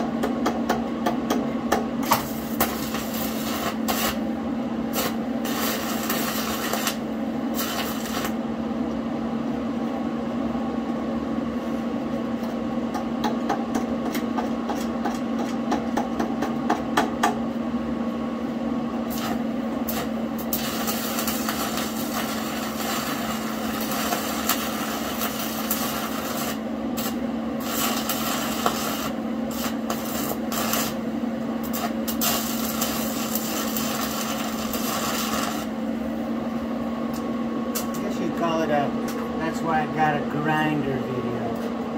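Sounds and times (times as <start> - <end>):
steady low hum: 0.0 - 41.9
welding arc crackling: 2.0 - 8.5, 19.1 - 35.9.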